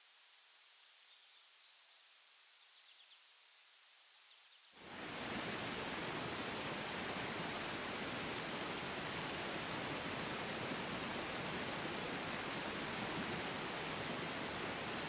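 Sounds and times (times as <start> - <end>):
faint bird chirps: 0.0 - 4.8
insect chirping: 0.0 - 15.0
waterfall rushing over rocks: 4.8 - 15.0.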